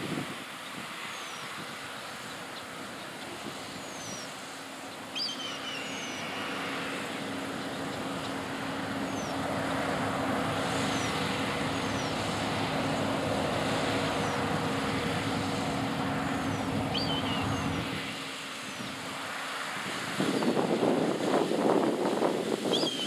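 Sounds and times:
combine harvester engine hum: 0:00.0 - 0:23.0.

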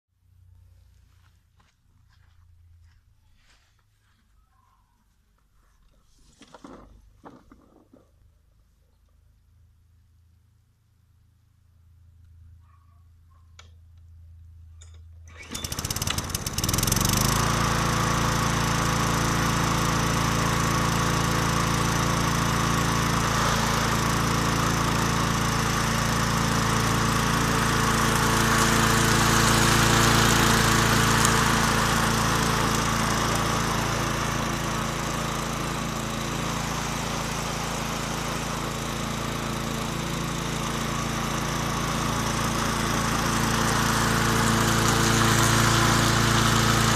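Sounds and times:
lawn mower engine running: 0:14.8 - 0:46.9.

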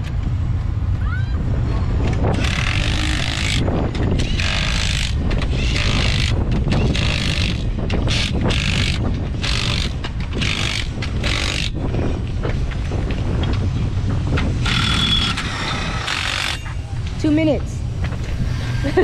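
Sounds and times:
impact wrench bursts: 0:02.4 - 0:03.6, 0:04.2 - 0:11.8, 0:14.6 - 0:16.7.

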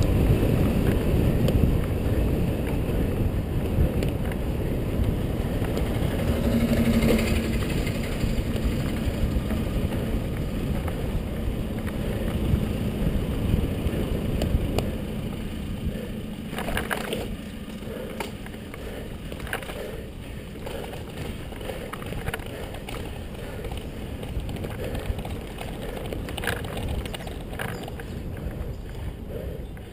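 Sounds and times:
road rumble: 0:00.0 - 0:29.9
wind buffeting microphone: 0:00.0 - 0:29.9.

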